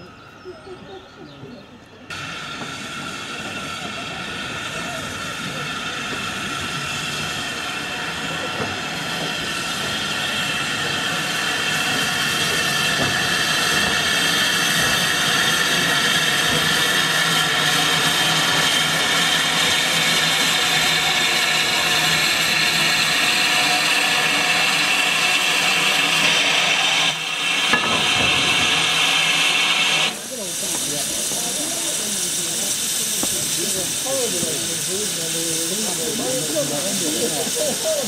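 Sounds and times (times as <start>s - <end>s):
steam locomotive hissing steam: 0.0s - 38.0s.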